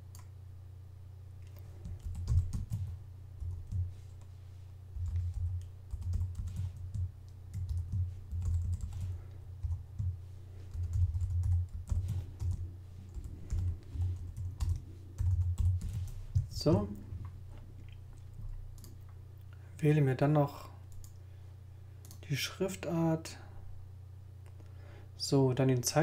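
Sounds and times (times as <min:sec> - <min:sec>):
steady low hum: 0:00.0 - 0:26.0
typing on keyboard: 0:01.8 - 0:03.8, 0:05.0 - 0:10.1, 0:10.7 - 0:16.8.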